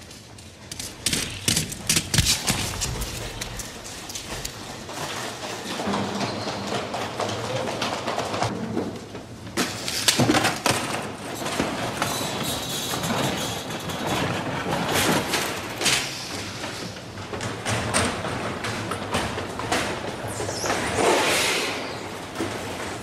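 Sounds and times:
skate wheels rolling: 0:00.0 - 0:23.0
hurried footsteps on hard floor: 0:00.6 - 0:05.3.

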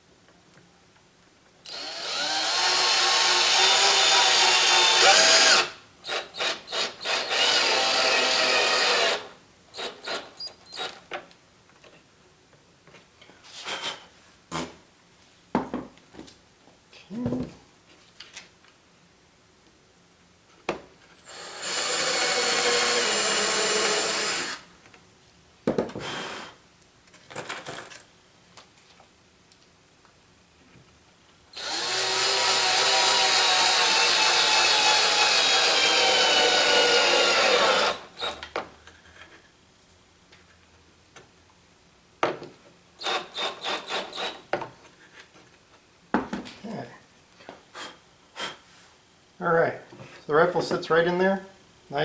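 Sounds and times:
cordless drill driving into wood: 0:01.7 - 0:11.0, 0:21.2 - 0:24.6, 0:25.8 - 0:26.6, 0:31.6 - 0:38.6, 0:43.0 - 0:44.4.

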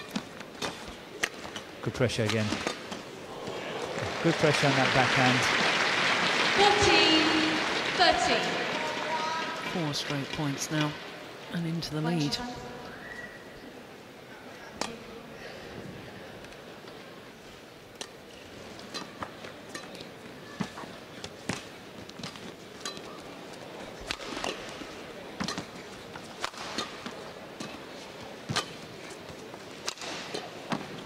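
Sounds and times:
low crowd hum: 0:00.0 - 0:31.0
racket striking shuttlecock: 0:24.0 - 0:29.0, 0:29.7 - 0:31.0.

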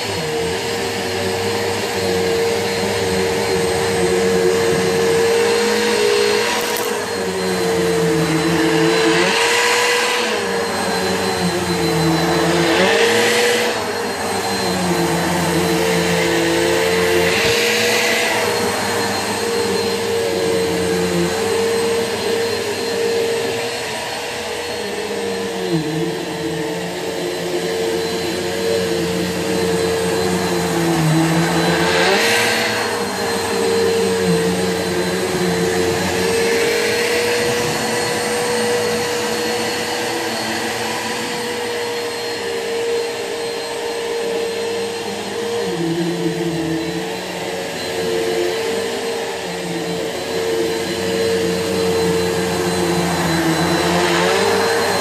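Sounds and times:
vacuum cleaner motor humming: 0:00.0 - 0:55.0
vacuum hiss on carpet: 0:00.0 - 0:55.0.

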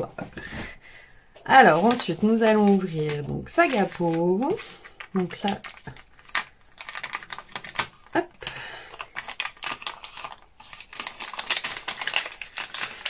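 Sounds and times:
paper rustling: 0:01.5 - 0:08.2, 0:08.9 - 0:13.0
paper packet crinkling: 0:01.5 - 0:13.0.

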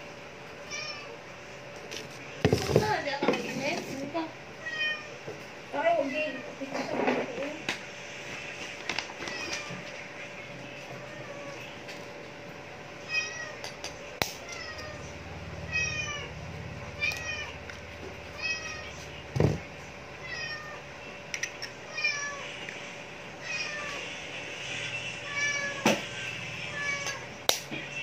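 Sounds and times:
cat meowing: 0:20.2 - 0:20.8, 0:26.7 - 0:27.2.

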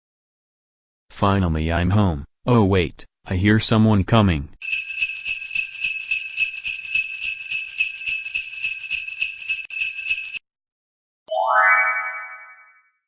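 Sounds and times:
sleigh bells jingling: 0:04.6 - 0:10.4.

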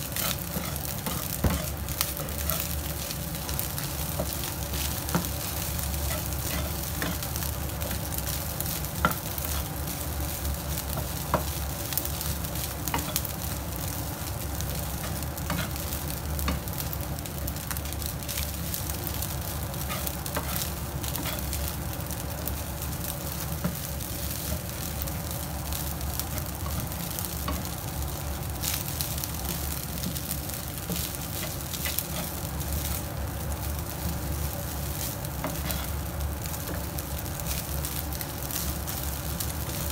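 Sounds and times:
rice sizzling in pan: 0:00.0 - 0:39.9
wooden spatula scraping pan: 0:00.1 - 0:08.0, 0:19.8 - 0:21.6, 0:35.4 - 0:36.0.

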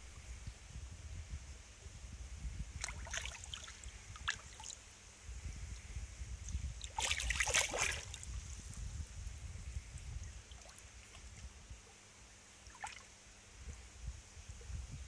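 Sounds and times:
wind on microphone: 0:00.0 - 0:12.0, 0:13.5 - 0:15.0
water splashing: 0:02.8 - 0:04.8, 0:06.8 - 0:08.3, 0:12.6 - 0:13.1.

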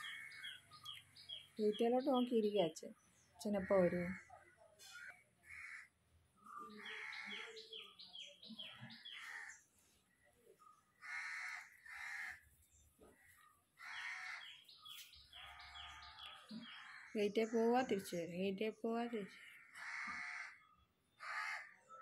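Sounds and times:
crows cawing: 0:00.0 - 0:00.6, 0:03.5 - 0:06.0, 0:06.7 - 0:07.6, 0:09.0 - 0:09.6, 0:11.0 - 0:12.5, 0:13.1 - 0:14.6, 0:15.4 - 0:17.2, 0:19.3 - 0:21.9.

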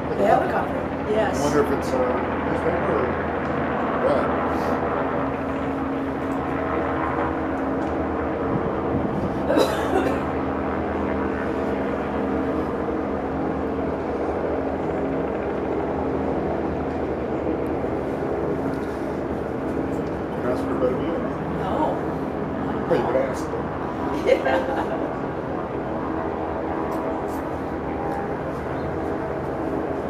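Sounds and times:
engine drone: 0:00.0 - 0:30.0.

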